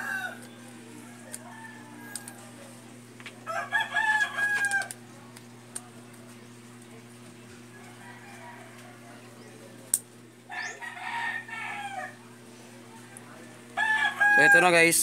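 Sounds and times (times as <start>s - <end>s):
rooster crowing: 0.0s - 2.7s, 3.4s - 5.0s, 7.7s - 9.6s, 10.5s - 12.3s, 13.8s - 15.0s
steady low hum: 0.0s - 15.0s.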